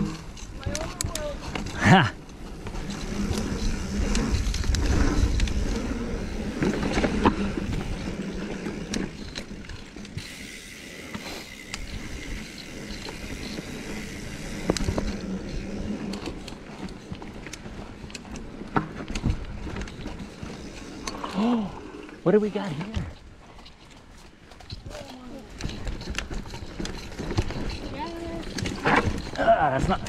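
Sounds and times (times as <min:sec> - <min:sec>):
bike clicks and rattles: 0:00.0 - 0:30.0
bike tyres rumbling on dirt: 0:00.0 - 0:30.0.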